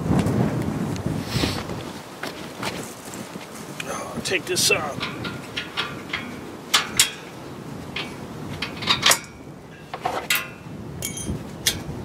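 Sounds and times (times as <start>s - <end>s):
metal hardware clinking and rattling: 4.5s - 11.9s
sharp metal knocks: 4.7s - 11.9s.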